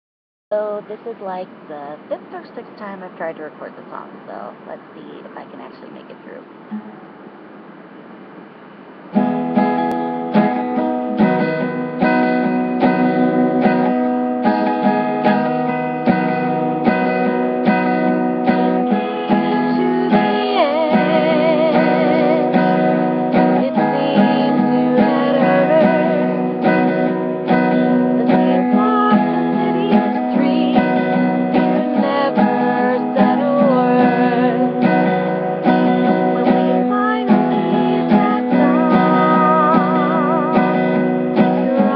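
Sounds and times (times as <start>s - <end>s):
acoustic guitar strumming: 0.5s - 41.9s
woman singing: 11.2s - 15.5s, 17.6s - 41.9s.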